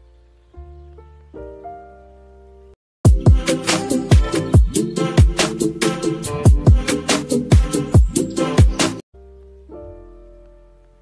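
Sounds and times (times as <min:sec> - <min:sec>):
slow soft piano music: 0:00.0 - 0:02.8, 0:09.2 - 0:11.0.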